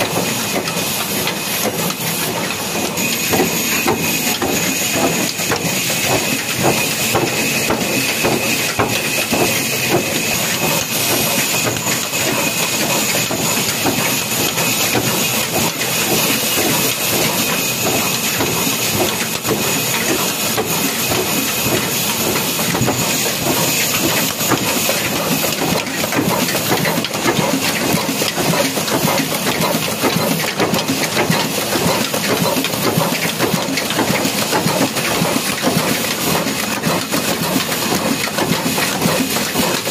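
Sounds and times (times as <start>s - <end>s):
diesel engine clattering: 0.0s - 39.9s.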